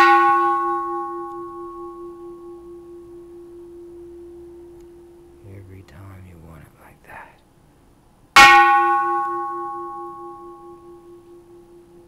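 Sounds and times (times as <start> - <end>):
temple bell struck with mallet: 0.0 - 5.4, 8.4 - 12.0
bell ringing with low hum: 0.0 - 5.6, 8.4 - 12.0.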